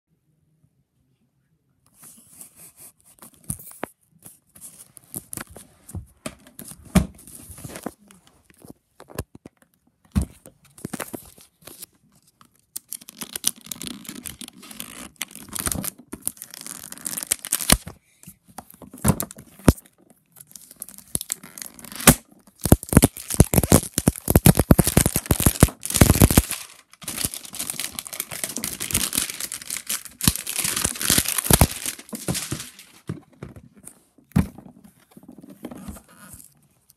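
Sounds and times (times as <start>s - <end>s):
plastic packaging tearing and crinkling: 12.8s - 17.9s, 20.5s - 33.1s.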